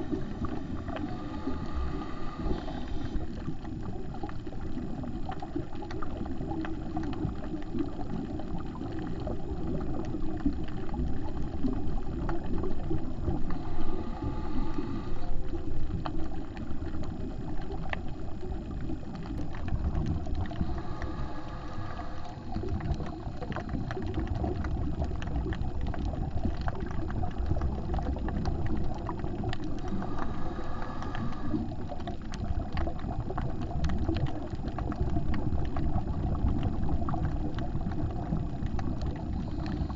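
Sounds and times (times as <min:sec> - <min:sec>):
underwater bubbles gurgling: 0:00.0 - 0:39.9
regulator hissing inhalation: 0:00.2 - 0:03.3, 0:13.5 - 0:15.5, 0:29.8 - 0:31.6.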